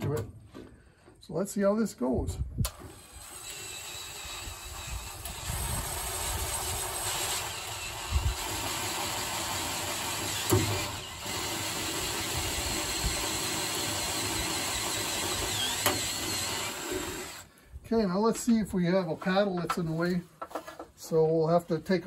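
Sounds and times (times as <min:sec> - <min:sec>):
drill grinding through sheet metal: 0:02.7 - 0:17.5.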